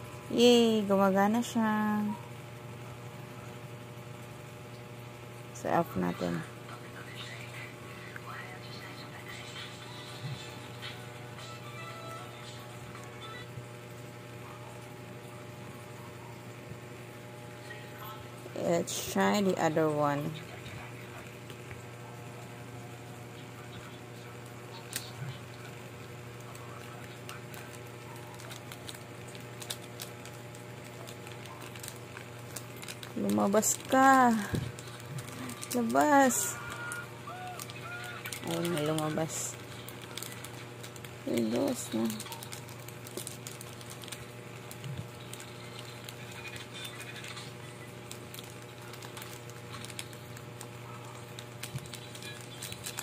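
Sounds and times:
steady low hum: 0:00.0 - 0:53.0
plastic sleeve crinkling: 0:23.6 - 0:53.0.

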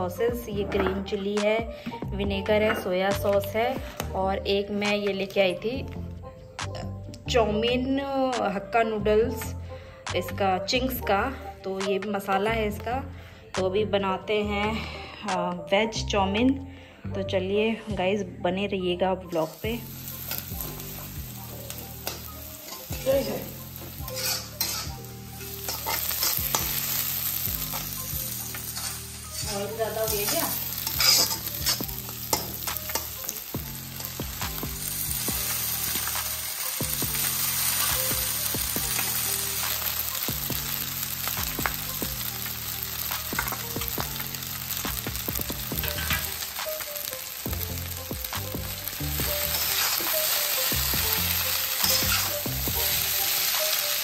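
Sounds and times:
vegetables sizzling in oil: 0:19.3 - 0:54.0
metal spatula scraping wok: 0:19.4 - 0:34.2, 0:45.8 - 0:46.5, 0:49.2 - 0:50.6, 0:51.6 - 0:54.0
metal clacking on wok: 0:24.0 - 0:26.8, 0:28.5 - 0:33.4.

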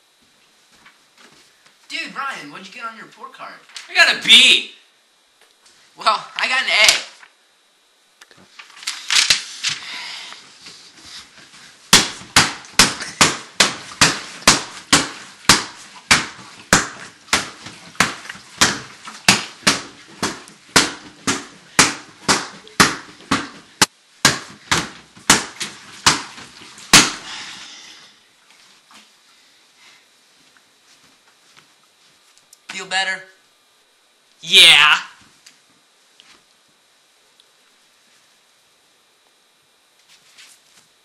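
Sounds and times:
fists pounding punching bag: 0:11.9 - 0:27.3.

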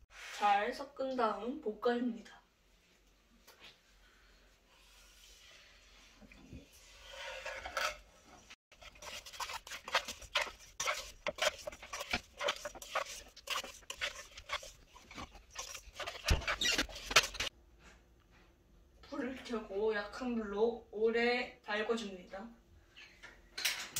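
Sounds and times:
wooden spatula scraping a pan: 0:00.0 - 0:00.8, 0:04.7 - 0:17.5.

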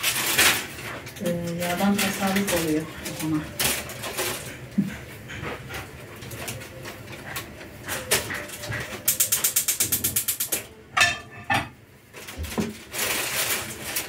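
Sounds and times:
rapid mechanical clicks: 0:07.9 - 0:10.7
kitchen handling noise: 0:08.0 - 0:14.0.

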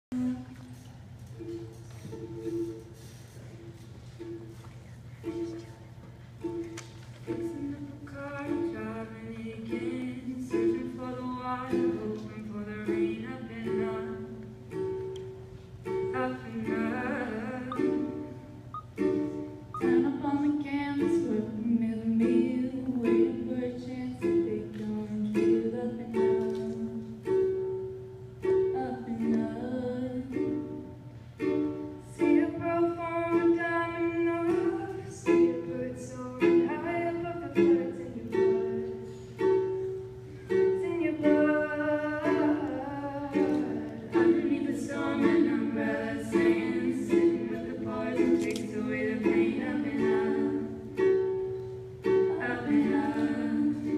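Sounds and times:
strummed acoustic string instrument: 0:00.1 - 0:53.9
women singing in harmony: 0:07.4 - 0:14.4, 0:16.1 - 0:18.4, 0:19.8 - 0:27.2, 0:28.7 - 0:30.8, 0:40.7 - 0:51.2, 0:52.1 - 0:53.9.

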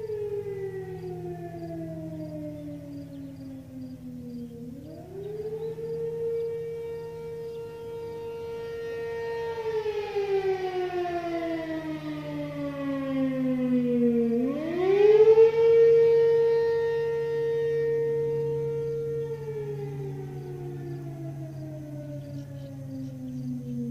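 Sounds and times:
distant fire siren wailing: 0:00.0 - 0:23.9.

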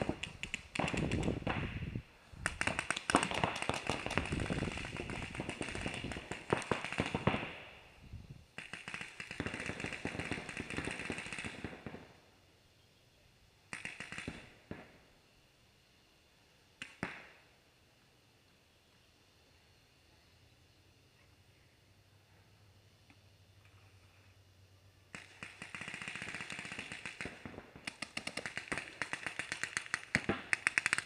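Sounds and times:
paintball markers firing: 0:00.0 - 0:07.7, 0:08.6 - 0:12.1, 0:13.7 - 0:14.9, 0:16.8 - 0:17.3, 0:25.1 - 0:31.0.

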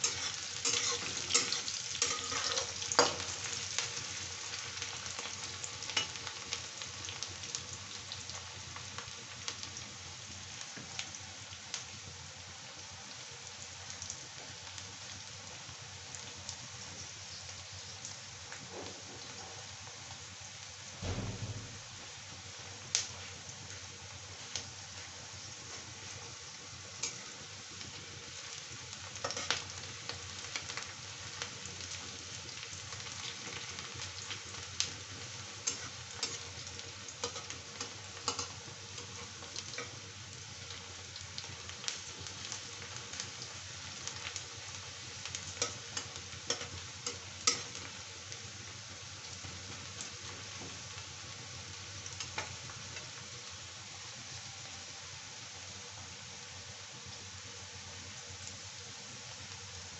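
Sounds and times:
spatula scraping a pan: 0:00.0 - 0:03.4
onions sizzling in hot oil: 0:00.0 - 0:59.9
low thump: 0:21.0 - 0:21.9.

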